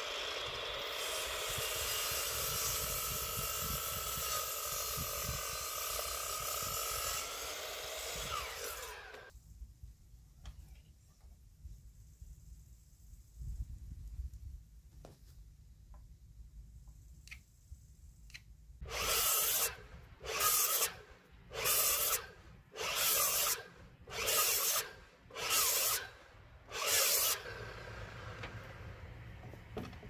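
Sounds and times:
hand tool rasping on timber: 0:21.6 - 0:26.1.

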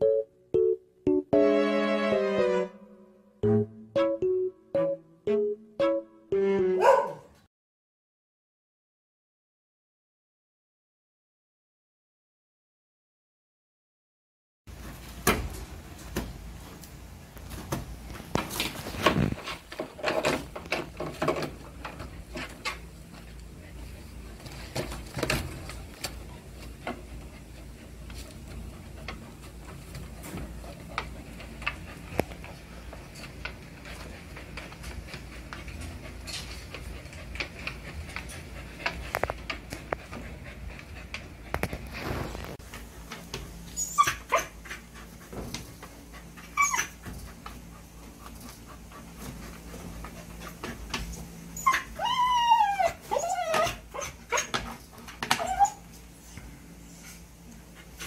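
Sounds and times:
dog whining: 0:06.5 - 0:07.3, 0:43.8 - 0:44.6, 0:46.6 - 0:47.0, 0:51.6 - 0:54.6, 0:55.2 - 0:55.9.

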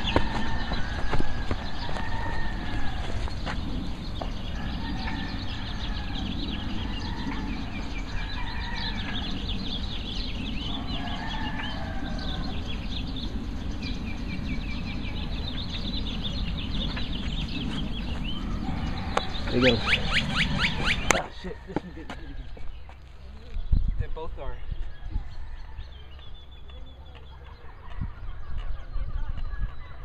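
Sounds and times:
birds chirping: 0:00.0 - 0:30.0
low rumble: 0:00.0 - 0:30.0.

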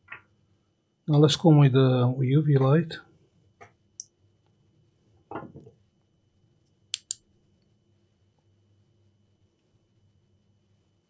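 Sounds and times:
lamp switch clicks: 0:07.0 - 0:07.2.

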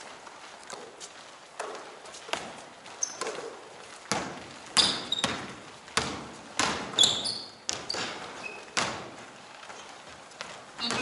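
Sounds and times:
basketball bouncing on gym floor: 0:01.6 - 0:09.3, 0:10.4 - 0:11.0
sneakers squeaking on court: 0:01.6 - 0:11.0.

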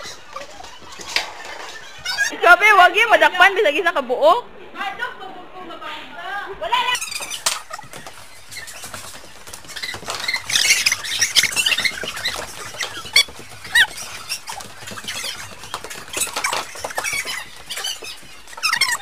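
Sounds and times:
high-pitched squeaks and squeals: 0:00.0 - 0:02.3, 0:06.9 - 0:19.0
running on wooden floor: 0:07.0 - 0:19.0.

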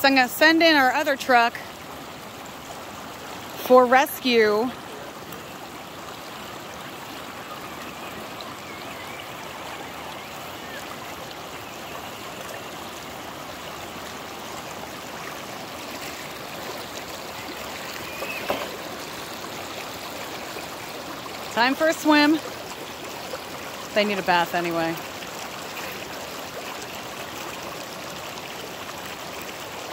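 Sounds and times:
creek water running over rocks: 0:00.0 - 0:29.9.

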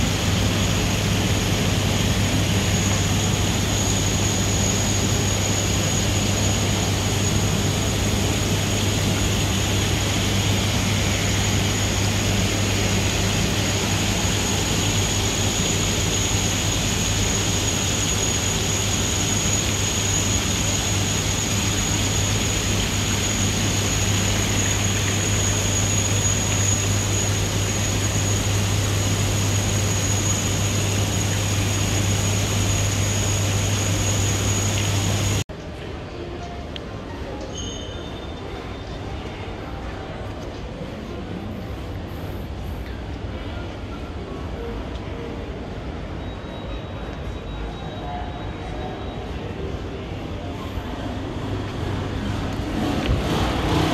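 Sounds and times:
high-pitched machine whine: 0:00.0 - 0:35.5, 0:45.4 - 0:53.9
low machine hum: 0:00.0 - 0:35.5
even rushing noise: 0:50.7 - 0:53.9.

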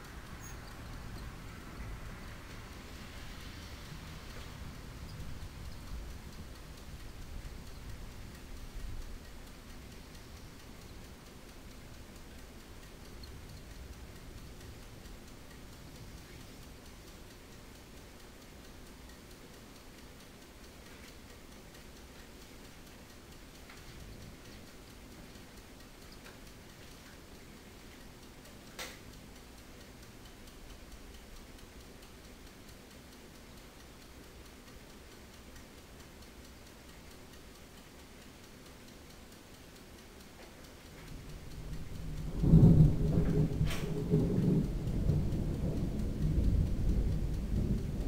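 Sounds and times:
thunder rumbling: 0:41.6 - 0:48.0.

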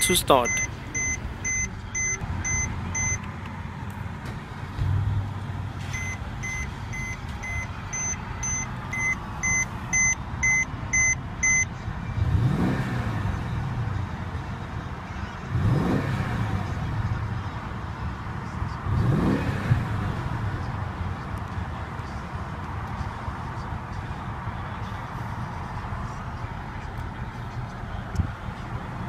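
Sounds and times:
dashboard warning chime beeping: 0:00.0 - 0:03.2, 0:05.9 - 0:11.7
car engine idling and revving: 0:00.0 - 0:29.0.

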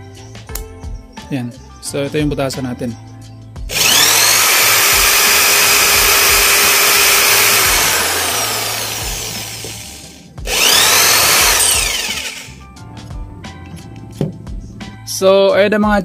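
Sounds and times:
electric drill boring metal: 0:03.7 - 0:12.6.

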